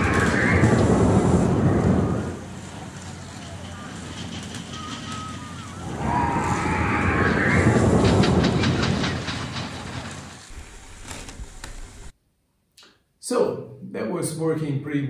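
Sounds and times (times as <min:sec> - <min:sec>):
plastic sledge rattling on track: 0:00.0 - 0:12.1.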